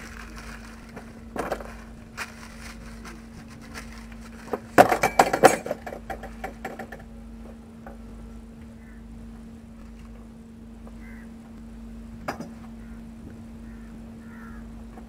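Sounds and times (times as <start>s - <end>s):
ringing metal clatter: 3.7s - 7.0s.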